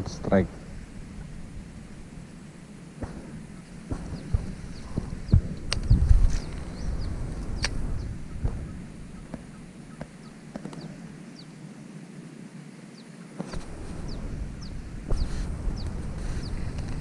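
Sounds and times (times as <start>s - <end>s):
wind rumbling on microphone: 0.0s - 12.3s, 13.4s - 17.0s
small bird chirping: 3.5s - 11.6s, 14.0s - 16.7s.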